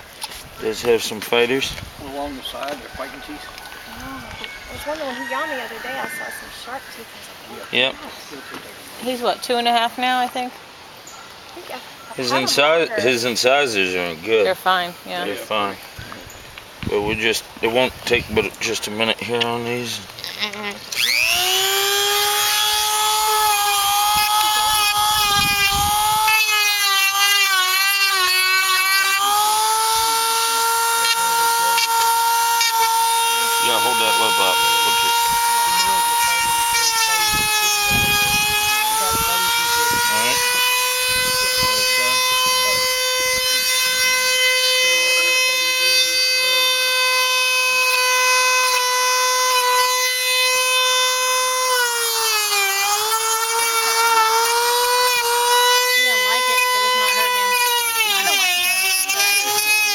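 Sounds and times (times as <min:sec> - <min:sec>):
rotary tool grinding teeth: 0:00.0 - 0:07.0, 0:12.4 - 0:59.9.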